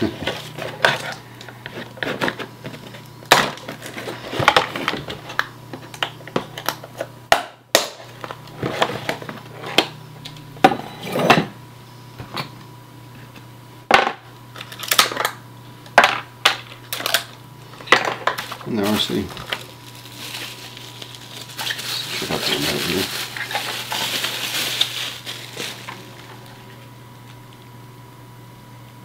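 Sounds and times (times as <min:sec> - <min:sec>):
steady low hum: 0:00.0 - 0:29.0
plastic packaging clicks and rustles: 0:16.6 - 0:26.6.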